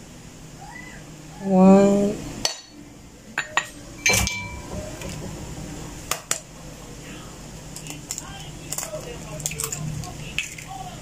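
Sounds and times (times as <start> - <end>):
ceramic dishes clinking: 3.4 - 4.7.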